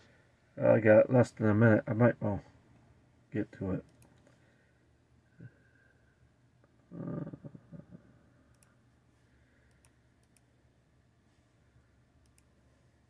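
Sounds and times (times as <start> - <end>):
computer mouse clicks: 8.5 - 8.8, 9.6 - 10.5, 12.2 - 12.5.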